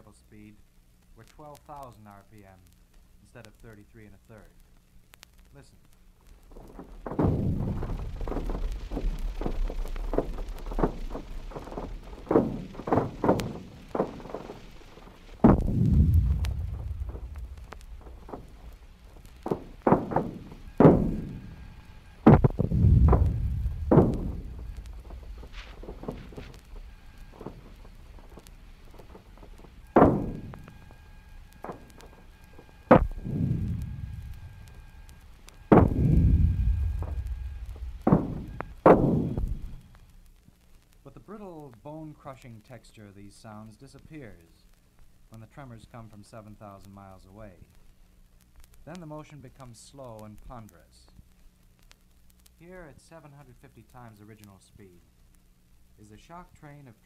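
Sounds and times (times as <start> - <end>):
sharp cracks and thuds: 4.4 - 42.7
deep low rumble: 6.1 - 40.2
heavy deep crash: 6.3 - 40.0.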